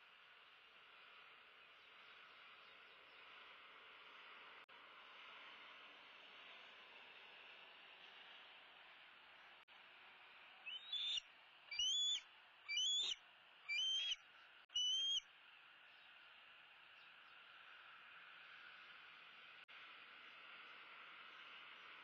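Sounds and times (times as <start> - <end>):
eagle whistled calls: 10.7 - 15.2.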